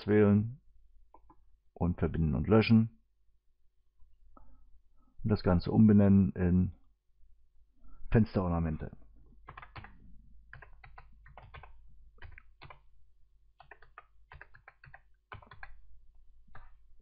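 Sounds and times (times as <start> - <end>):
keyboard typing clicks: 9.5 - 12.9, 13.6 - 15.8.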